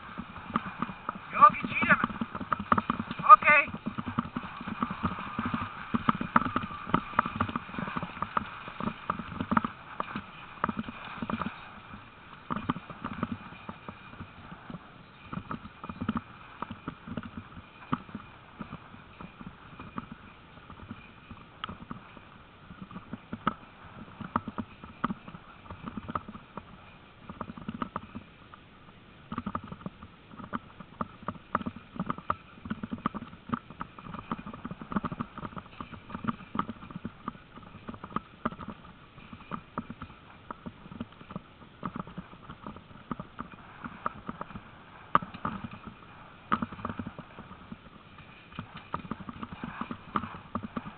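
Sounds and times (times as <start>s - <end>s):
dog footfalls and gear clatter: 29.3s - 50.9s.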